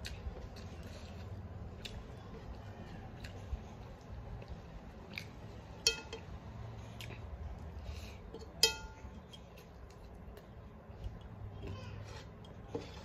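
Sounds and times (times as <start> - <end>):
small clicks of hand eating: 0.0 - 5.5
steel plate clinking: 5.8 - 6.2, 8.6 - 9.1.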